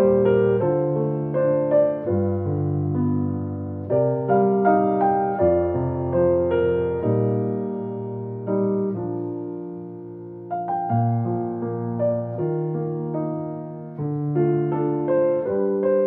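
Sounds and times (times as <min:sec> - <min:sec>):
gentle piano music: 0:00.0 - 0:16.0.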